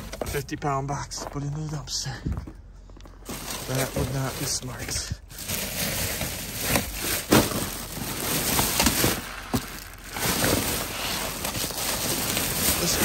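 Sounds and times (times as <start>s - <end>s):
plastic bags rustling: 3.1s - 13.0s
items knocking together: 5.4s - 13.0s.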